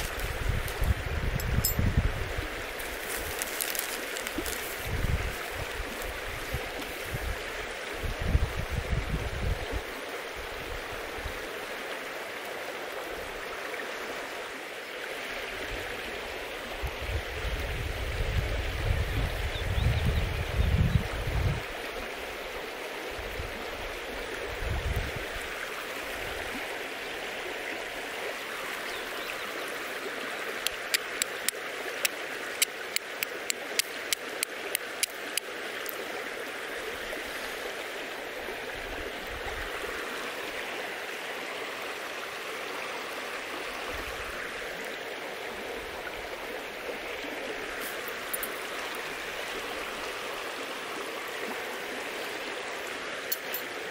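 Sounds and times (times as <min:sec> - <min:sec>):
running water: 0:00.0 - 0:53.9
steel striking flint: 0:53.3 - 0:53.8.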